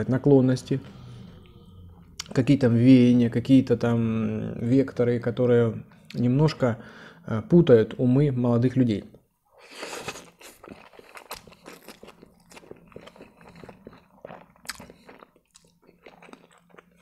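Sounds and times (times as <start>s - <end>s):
slurping spaghetti: 9.6s - 15.3s
wet chewing with mouth clicks: 9.7s - 17.0s.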